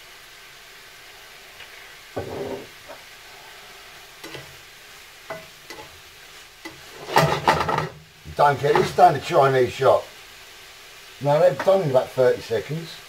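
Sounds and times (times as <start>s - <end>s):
prawns sizzling in pan: 0.0s - 13.0s
metal spatula scraping pan: 2.2s - 2.8s, 4.2s - 4.6s, 5.3s - 6.0s, 6.6s - 8.0s.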